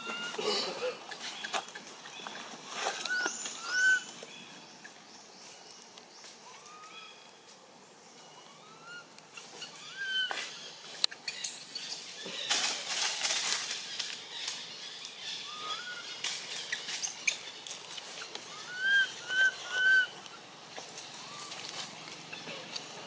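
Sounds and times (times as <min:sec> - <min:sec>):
infant monkey coo calls: 0:00.0 - 0:04.1, 0:08.4 - 0:11.6, 0:15.3 - 0:16.2, 0:18.0 - 0:22.8
rustling leaves and branches: 0:00.0 - 0:23.0.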